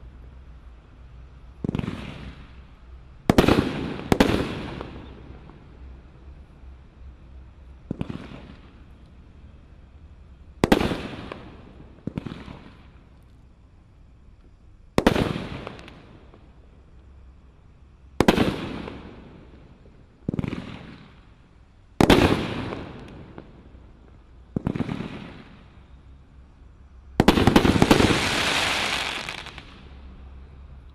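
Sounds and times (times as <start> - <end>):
dense firework crackling: 1.5 - 6.4, 7.8 - 9.0, 10.4 - 14.1, 14.9 - 30.4
firework bangs with crackle: 1.6 - 2.6, 3.2 - 5.6, 7.8 - 8.9, 10.5 - 13.0, 14.9 - 16.5, 18.2 - 21.4, 22.0 - 25.8, 27.1 - 30.0.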